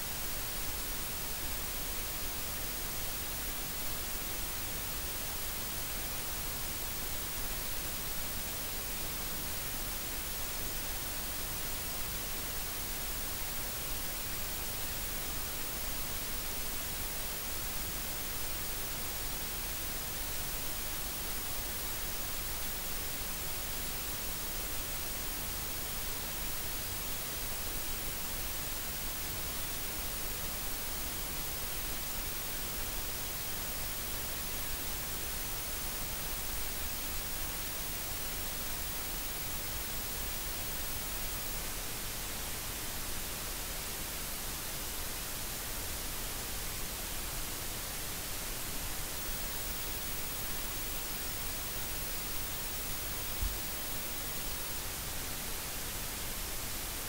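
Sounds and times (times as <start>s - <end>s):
white noise hiss: 0.0s - 57.0s.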